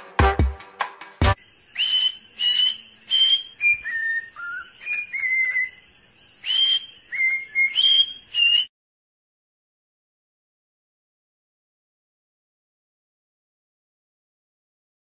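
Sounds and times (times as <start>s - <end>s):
cockatiel whistling a tune: 1.8s - 5.8s, 6.4s - 8.7s.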